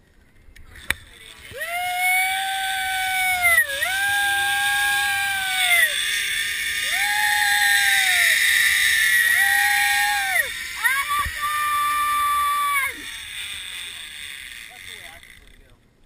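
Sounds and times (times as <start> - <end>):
zip line cable hiss: 0.9 - 15.6
person yelling: 1.6 - 6.0, 9.3 - 13.0.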